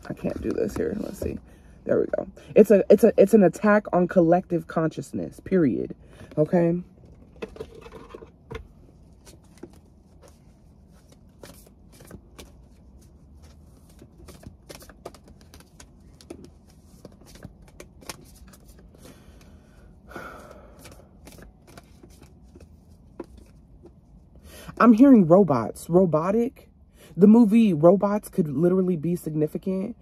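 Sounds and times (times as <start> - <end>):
cards being shuffled: 0.0 - 1.4, 7.1 - 19.1, 20.8 - 24.0
card rustle: 9.1 - 19.1, 20.8 - 23.9.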